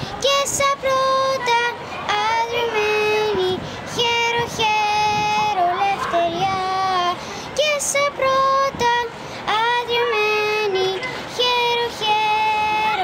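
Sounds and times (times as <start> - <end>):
girl singing: 0.0 - 13.0.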